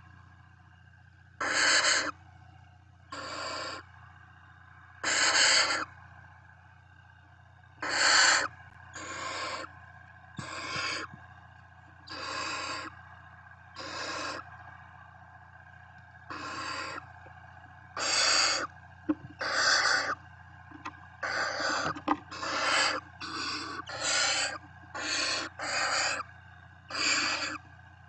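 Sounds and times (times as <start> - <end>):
owlets hissing: 10.4 - 11.1, 12.1 - 12.9, 16.3 - 17.0, 18.0 - 18.7, 19.4 - 20.2, 21.2 - 26.2, 26.9 - 27.6.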